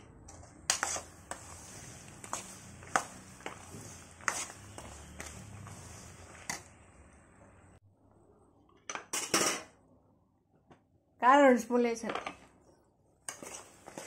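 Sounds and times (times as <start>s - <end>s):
oil sizzling in pan: 0.7s - 6.9s.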